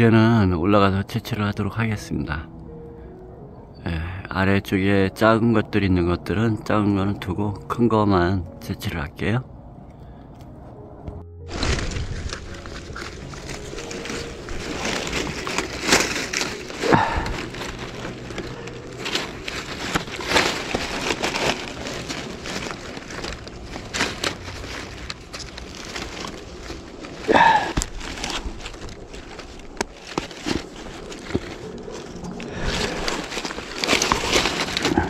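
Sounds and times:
dry leaves rustling and crackling: 11.4s - 35.0s
straps and buckles clicking: 11.5s - 35.0s.

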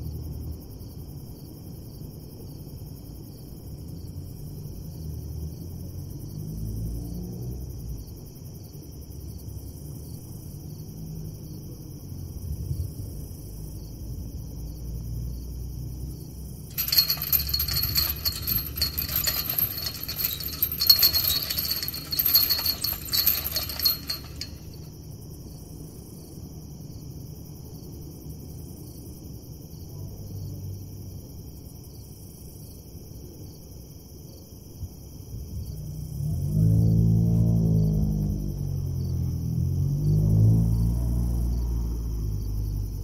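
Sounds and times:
chain-link gate rattling: 16.7s - 24.8s.

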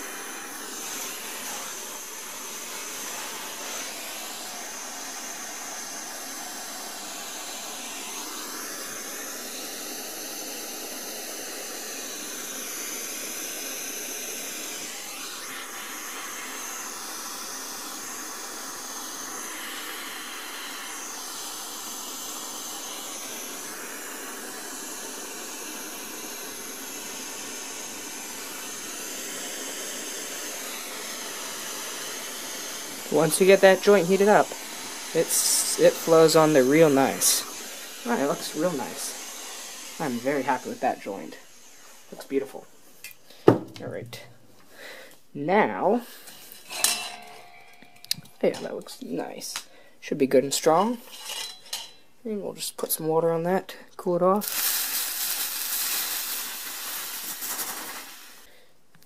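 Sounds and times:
blowtorch hissing: 0.0s - 49.7s, 54.3s - 58.7s.

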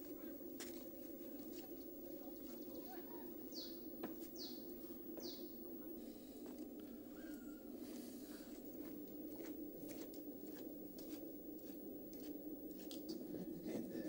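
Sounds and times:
footsteps on gritty dirt path: 0.0s - 3.0s, 8.4s - 13.2s
steady low hum: 0.0s - 14.0s.

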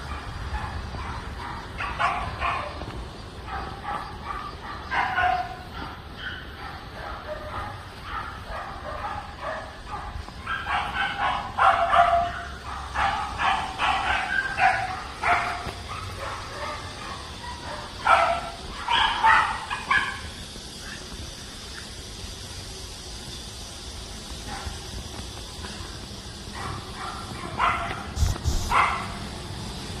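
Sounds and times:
dog yipping and barking: 0.0s - 2.8s, 3.5s - 20.4s, 26.6s - 29.2s.

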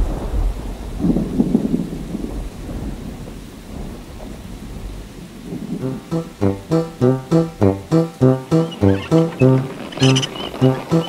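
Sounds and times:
thunder rumbling: 0.0s - 6.4s
steady rain: 0.0s - 6.9s, 8.5s - 11.0s.

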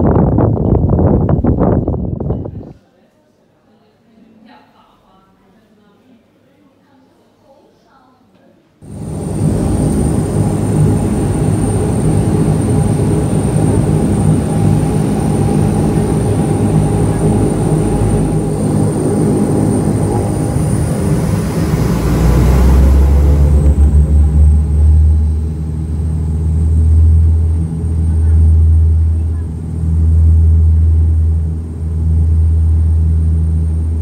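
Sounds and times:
turboprop engines droning: 8.8s - 34.0s.

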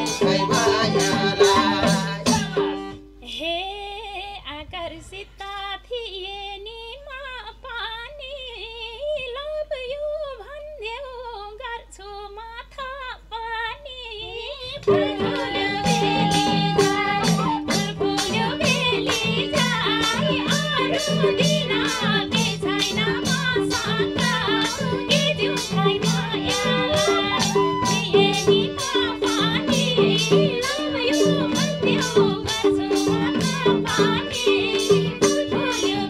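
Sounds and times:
hand drums: 0.0s - 3.0s, 14.8s - 36.0s
woman singing: 0.0s - 36.0s
harmonium: 14.9s - 36.0s.

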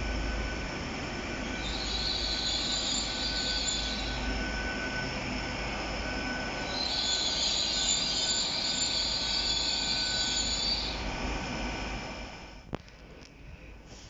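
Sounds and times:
train wheels squealing: 0.0s - 11.2s
train rumbling: 0.0s - 14.0s.

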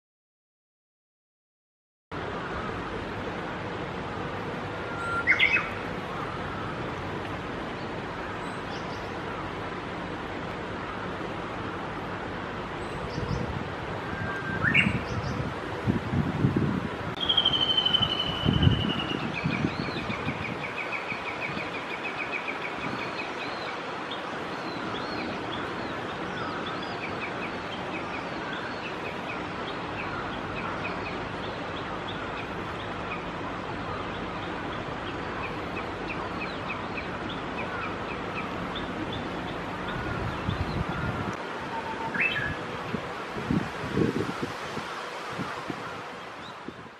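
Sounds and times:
steady outdoor noise: 2.1s - 46.9s
bush warbler singing: 4.5s - 46.9s.

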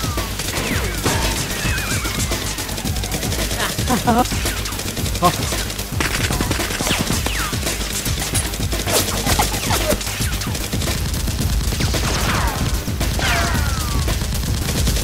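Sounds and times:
rapid gunfire: 0.0s - 15.0s
bullets whizzing past: 6.0s - 10.6s.

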